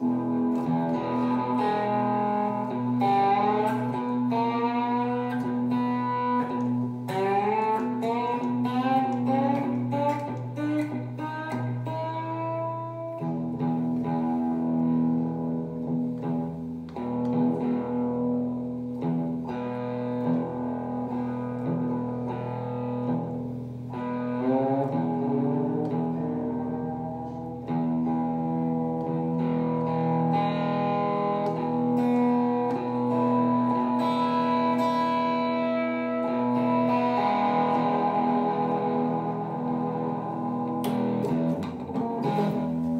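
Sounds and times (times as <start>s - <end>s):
slide electric guitar: 0.0s - 42.9s.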